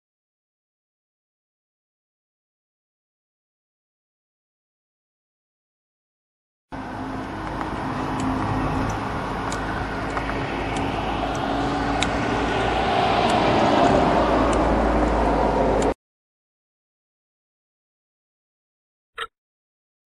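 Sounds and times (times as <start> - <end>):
road traffic hum and rumble: 6.7 - 16.0.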